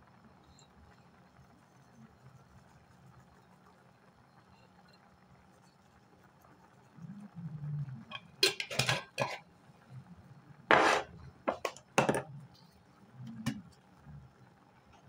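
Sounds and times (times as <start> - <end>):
jar scraping on countertop: 8.1 - 9.4, 10.7 - 12.3.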